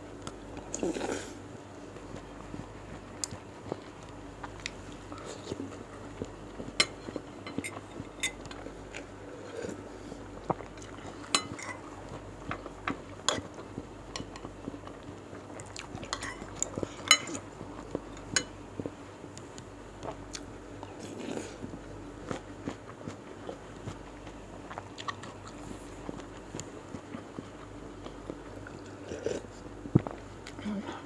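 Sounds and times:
close chewing: 20.0s - 30.6s.

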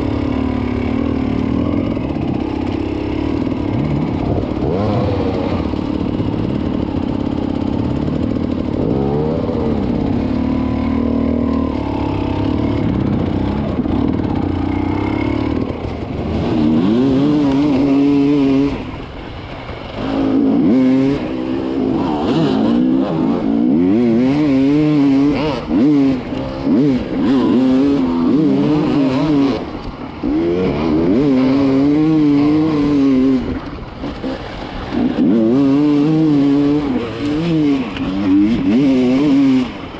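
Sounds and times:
dirt bike engines revving: 0.0s - 39.9s.

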